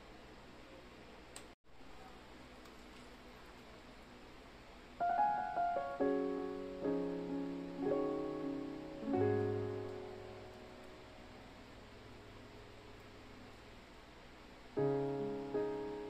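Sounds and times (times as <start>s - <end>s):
piano chords ringing: 5.0s - 13.8s, 14.8s - 16.0s.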